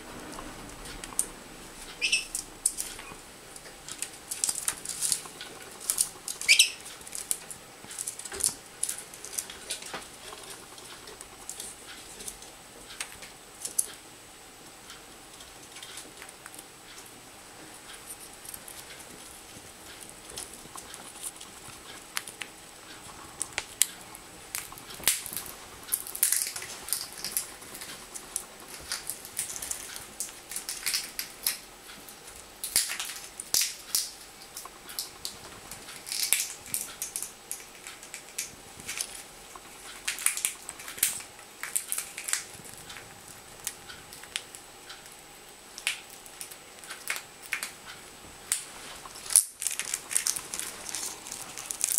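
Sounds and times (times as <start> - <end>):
parrot cracking peanut shell: 24.5 - 31.6, 32.6 - 39.2, 40.0 - 42.6, 48.5 - 51.9.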